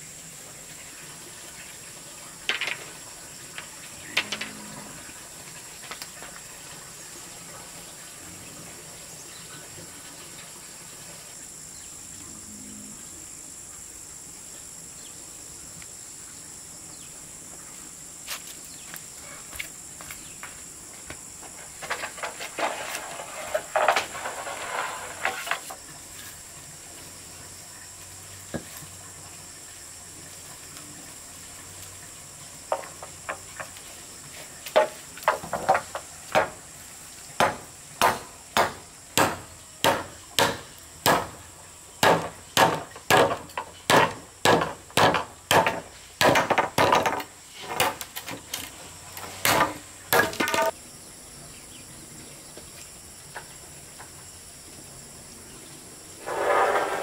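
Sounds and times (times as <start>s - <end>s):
sharp knocks on wood: 37.4s - 41.4s, 42.0s - 47.2s.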